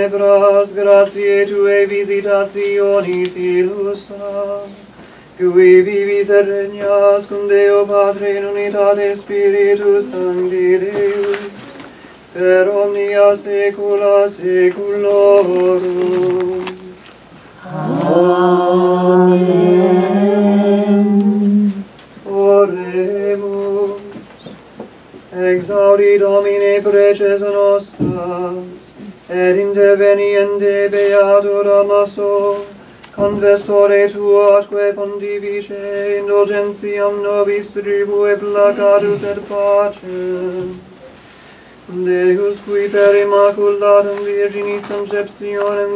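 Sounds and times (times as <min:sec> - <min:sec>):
man chanting: 0:17.6 - 0:24.1, 0:25.3 - 0:40.8.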